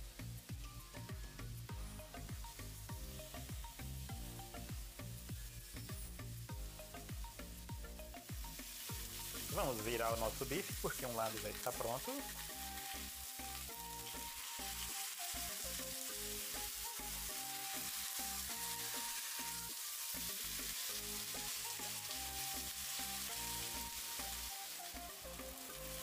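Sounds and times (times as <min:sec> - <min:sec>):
background music: 0:00.0 - 0:26.0
steaks sizzling in a frying pan: 0:00.0 - 0:26.0.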